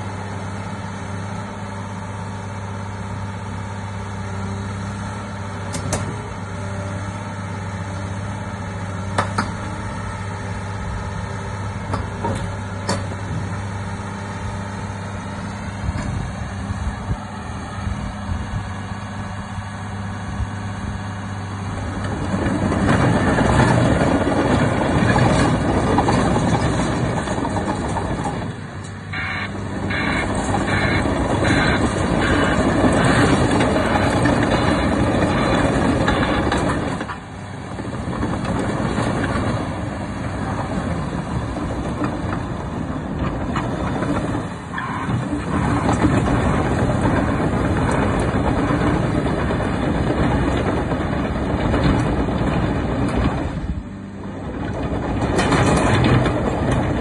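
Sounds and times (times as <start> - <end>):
diesel engine under load: 0.0 - 57.0
steel tracks clanking: 21.8 - 57.0.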